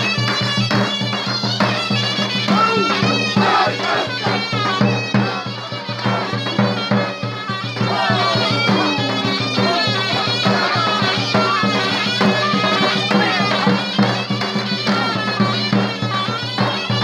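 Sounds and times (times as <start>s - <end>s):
drum beating steady rhythm: 0.0s - 17.0s
reedy wind instrument melody: 1.5s - 17.0s
low drone: 8.2s - 11.2s.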